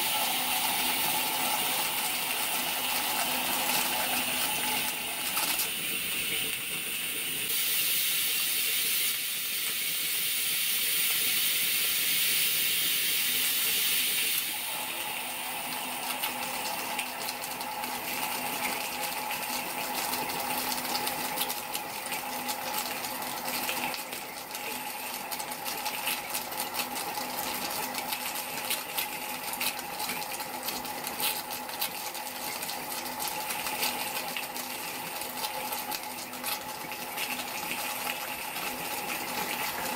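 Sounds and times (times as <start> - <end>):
steam hissing: 7.5 - 15.0.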